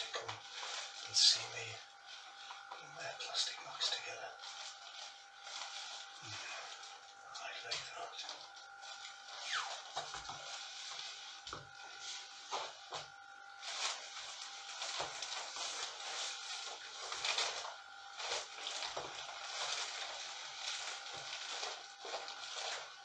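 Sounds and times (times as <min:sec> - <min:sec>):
plastic coat rustling: 0:00.0 - 0:07.0, 0:13.6 - 0:23.0.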